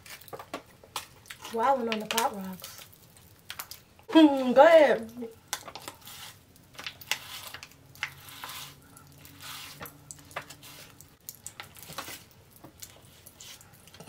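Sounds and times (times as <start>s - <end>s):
packet crinkling: 0.0s - 3.9s
candy crackling and popping: 0.0s - 14.0s.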